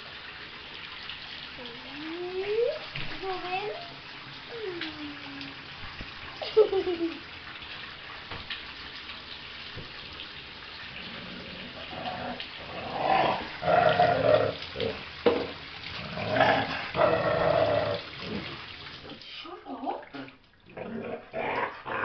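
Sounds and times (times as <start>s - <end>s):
running water hiss: 0.0s - 22.0s
puppy grumbling: 11.0s - 15.0s, 16.0s - 18.5s.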